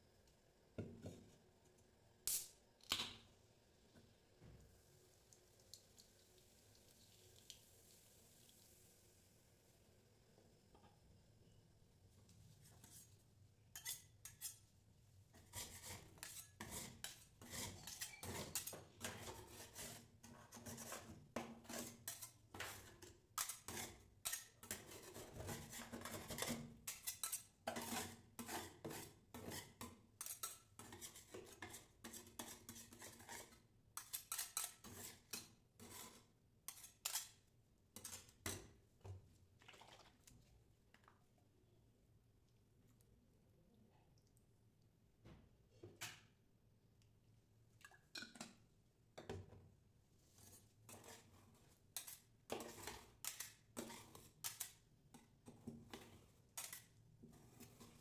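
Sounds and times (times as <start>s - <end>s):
spatulas scraping cold plate: 13.7s - 14.6s, 15.3s - 37.4s, 50.4s - 58.0s.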